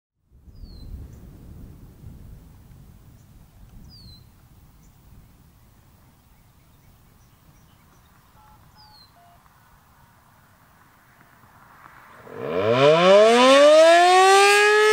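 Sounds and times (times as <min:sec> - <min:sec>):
wind rumble on microphone: 0:00.2 - 0:10.6
bird chirping: 0:03.2 - 0:09.5.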